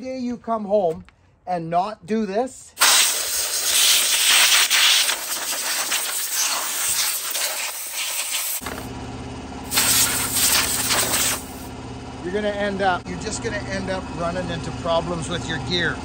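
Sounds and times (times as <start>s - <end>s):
compressed air hissing: 2.8s - 8.9s, 9.7s - 11.7s
motor humming: 5.1s - 8.9s, 9.7s - 11.7s.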